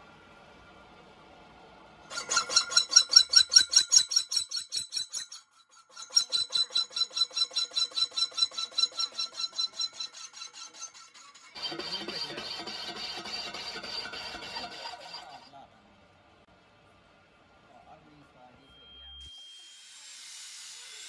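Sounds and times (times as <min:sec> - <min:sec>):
pulsing metal-on-metal squeal: 0:02.1 - 0:15.6.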